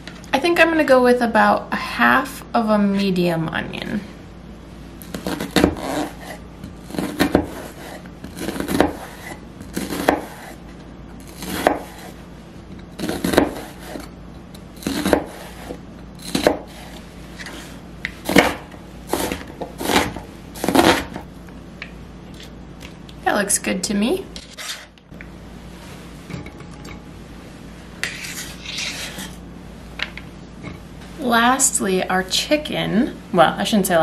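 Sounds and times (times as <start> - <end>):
knife slicing onion: 5.0 - 21.3, 24.4 - 25.0, 28.0 - 29.4.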